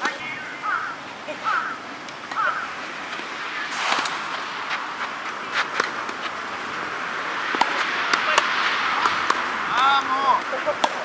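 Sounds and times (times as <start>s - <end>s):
rackets striking tennis ball: 2.0s - 6.5s, 7.5s - 11.0s.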